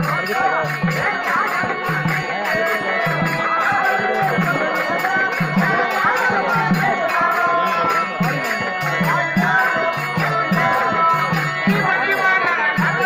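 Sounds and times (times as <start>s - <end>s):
drums keeping a steady beat: 0.0s - 13.0s.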